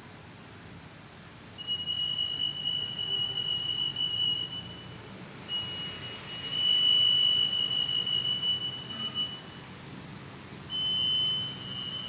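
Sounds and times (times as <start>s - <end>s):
anti-theft gate alarm tone: 1.6s - 9.6s, 10.7s - 12.0s.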